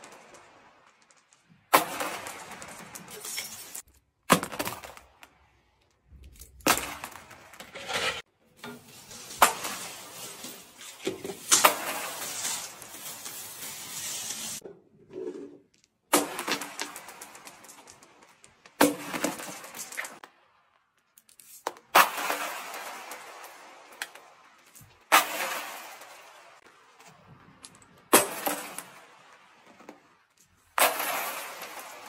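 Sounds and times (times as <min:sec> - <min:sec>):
beads rolling and bouncing: 0:00.0 - 0:08.2, 0:08.9 - 0:32.0
beads clattering on hard floor: 0:02.1 - 0:04.0, 0:09.0 - 0:14.6, 0:21.0 - 0:21.7.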